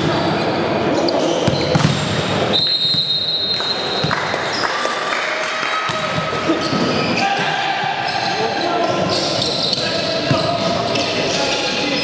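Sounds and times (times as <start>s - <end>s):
volleyball hits: 1.4s - 4.6s
high whistle-like tone: 2.5s - 4.0s.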